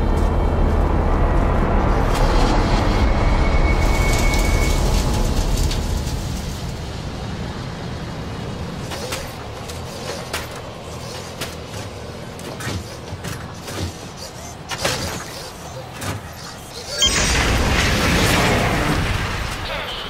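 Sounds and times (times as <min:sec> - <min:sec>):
deep rumbling drone: 0:00.0 - 0:09.1.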